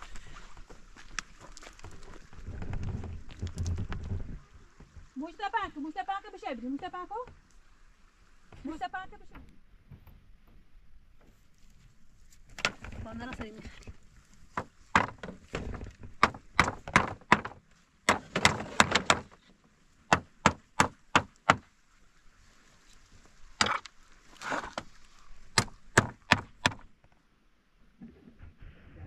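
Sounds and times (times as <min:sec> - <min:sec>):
sharp blows striking wood: 0:14.6 - 0:19.4, 0:20.1 - 0:21.7, 0:25.5 - 0:26.9.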